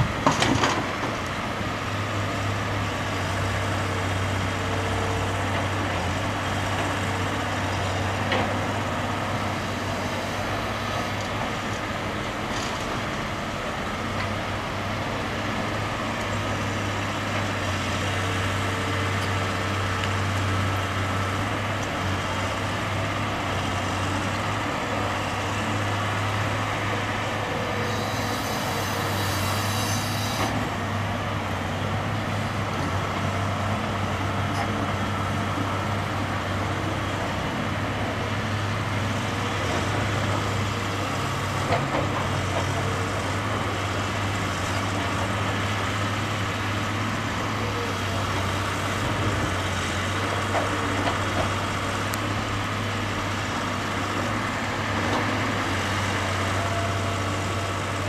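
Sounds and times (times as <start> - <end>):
diesel engines droning: 0.0 - 58.0
brief hiss: 27.8 - 30.6.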